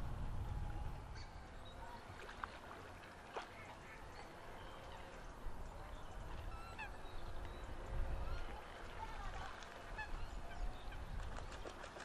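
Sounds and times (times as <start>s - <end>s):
low steady rumble: 0.0s - 11.6s
waterfowl calling: 6.3s - 11.2s.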